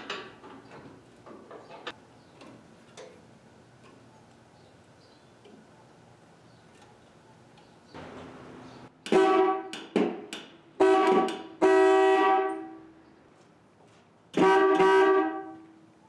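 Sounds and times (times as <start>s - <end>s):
electric car horn honking: 10.8s - 12.8s, 14.4s - 15.7s.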